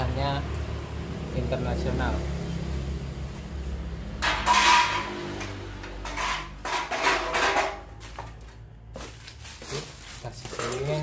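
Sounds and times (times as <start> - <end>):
parts clattering in a box: 4.2 - 5.2, 6.0 - 8.4.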